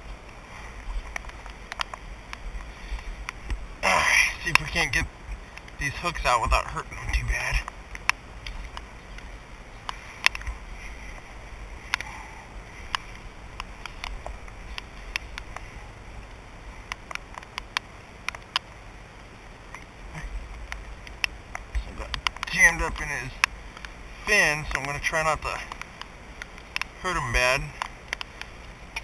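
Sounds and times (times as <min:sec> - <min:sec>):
light rain hiss: 0:00.0 - 0:29.0
raindrops ticking on camera: 0:00.0 - 0:29.0.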